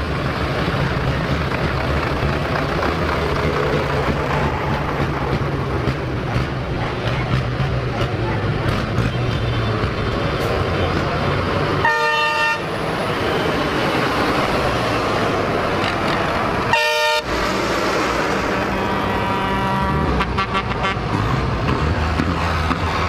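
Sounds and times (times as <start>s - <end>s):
diesel tractor engines running: 0.0s - 23.0s
tractor horns honking: 11.8s - 12.8s, 16.7s - 17.4s, 18.4s - 21.3s.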